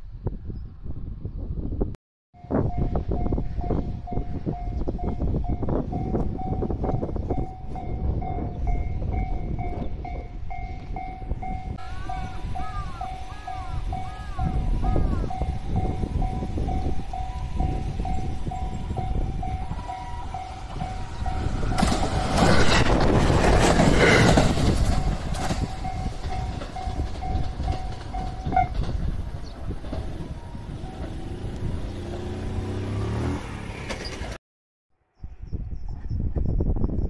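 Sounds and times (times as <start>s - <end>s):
level-crossing alarm bell ringing: 2.6s - 21.9s, 24.9s - 28.7s
train rolling past: 2.6s - 34.4s.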